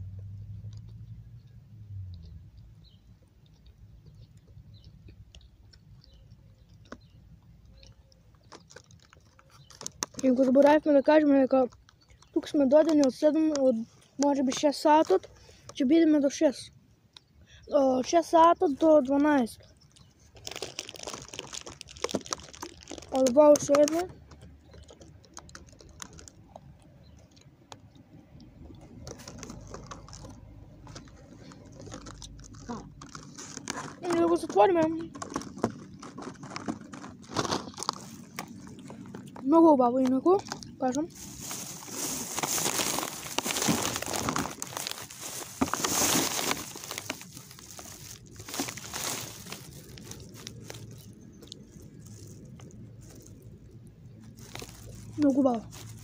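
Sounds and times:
chewing: 1.9 - 10.6, 11.6 - 14.2, 19.5 - 39.4, 40.3 - 56.0
crinkling and crunching: 2.0 - 56.0
small clicks and taps: 3.5 - 10.8, 22.8 - 39.4.

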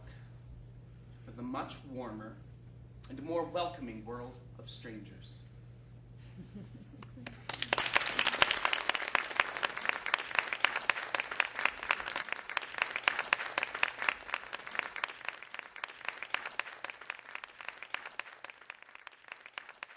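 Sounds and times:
audience applauding: 7.0 - 19.9.

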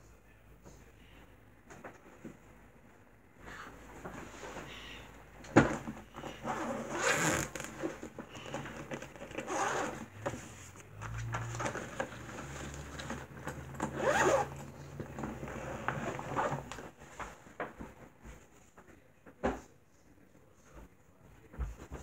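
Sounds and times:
bag rustling and bumps: 5.5 - 17.0
zipper pulled: 6.5 - 7.8, 9.3 - 10.1, 11.2 - 14.7, 15.4 - 16.8.

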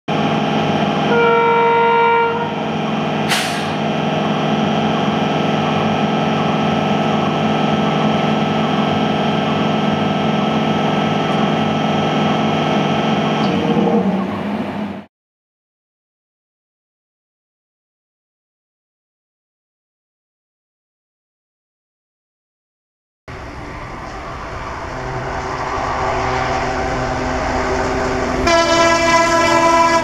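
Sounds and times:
train machinery drone: 0.1 - 15.1, 23.3 - 30.0
train horn blast: 0.9 - 3.8, 25.0 - 30.0
sharp click: 3.3 - 3.8.

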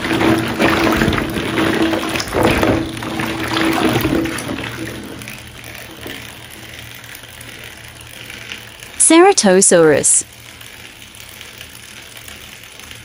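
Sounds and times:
water sloshing: 0.0 - 7.5
wet plastic balls knocking: 0.0 - 7.7.

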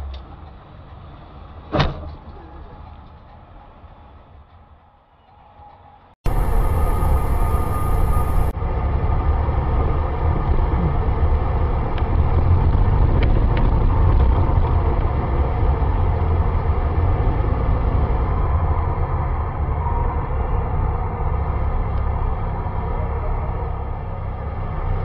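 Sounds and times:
car engine and road noise: 6.2 - 25.0.

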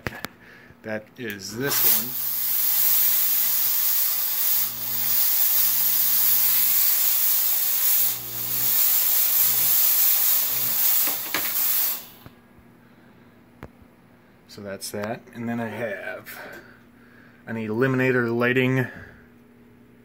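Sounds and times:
fog machine hissing: 1.4 - 12.4.

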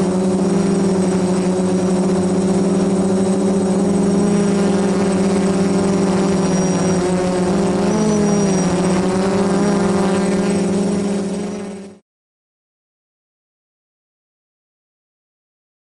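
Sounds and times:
quadcopter motors humming: 0.0 - 12.0.

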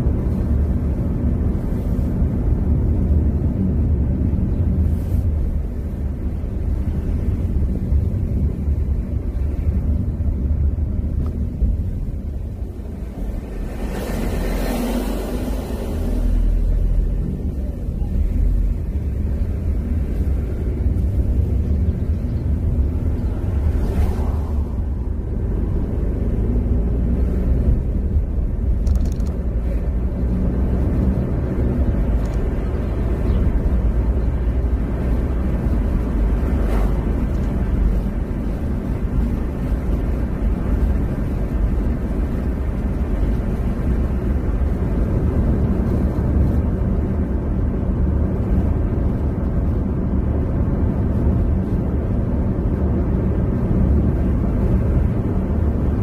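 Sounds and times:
car driving interior rumble: 0.0 - 56.0.

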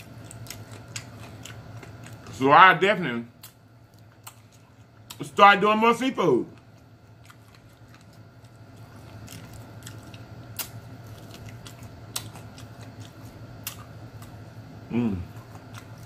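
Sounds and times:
chewing and smacking: 0.0 - 2.4, 3.4 - 5.4, 6.4 - 16.0
steady low hum: 0.0 - 16.0
person humming: 14.9 - 15.4.

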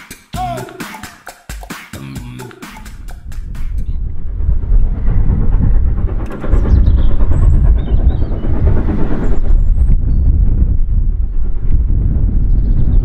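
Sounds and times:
steam train rumbling on track: 2.9 - 12.3.

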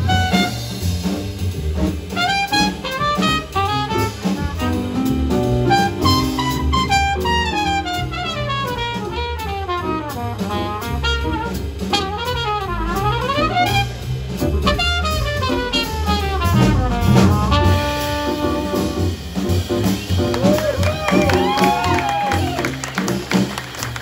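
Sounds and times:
trumpet lead line: 0.0 - 0.9, 2.1 - 24.0
drum kit: 0.0 - 24.0
upright bass: 0.0 - 24.0
acoustic piano: 12.9 - 24.0.

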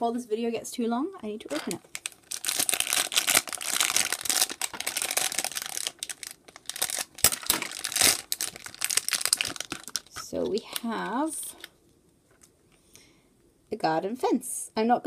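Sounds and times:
plastic packet crinkling: 1.5 - 11.7.

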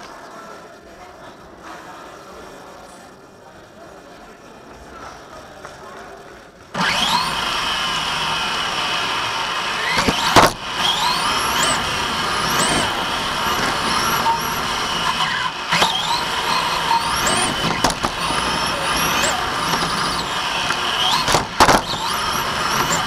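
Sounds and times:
electric motor whine: 6.8 - 23.0.

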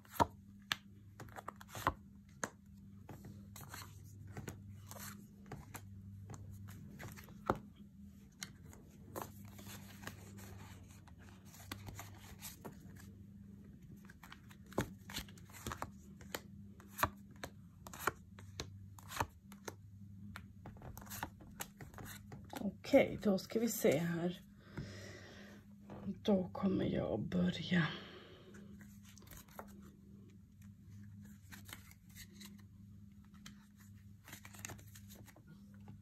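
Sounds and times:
playing cards shuffling: 0.0 - 13.1, 14.0 - 19.8, 20.7 - 22.6, 28.7 - 30.0, 30.6 - 35.4
low steady hum: 0.0 - 36.0.

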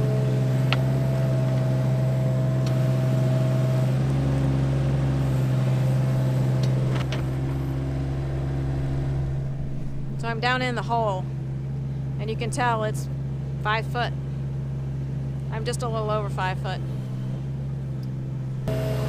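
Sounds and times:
diesel engine running: 0.0 - 19.0
high whine: 6.6 - 12.5.

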